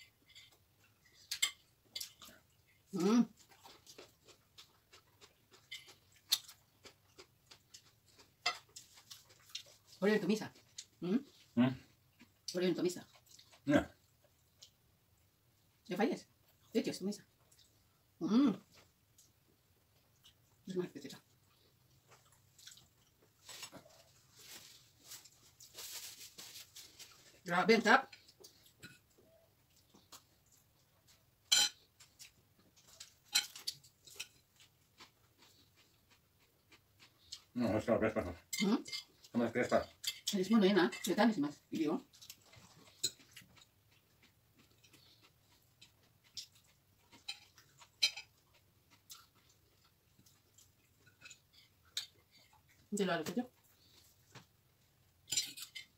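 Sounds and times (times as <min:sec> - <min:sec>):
faint eating noises: 0:00.0 - 0:55.9
cutlery clicking on plates: 0:31.5 - 0:31.8, 0:47.2 - 0:48.3, 0:55.3 - 0:55.9.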